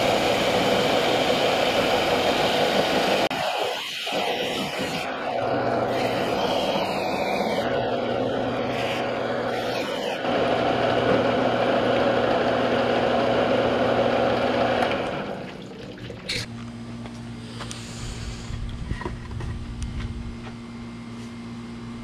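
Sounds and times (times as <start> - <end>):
sander motor humming: 0.0 - 15.4.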